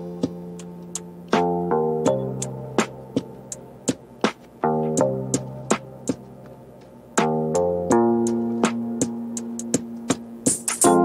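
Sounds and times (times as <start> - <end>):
ticking beat: 0.0 - 11.0.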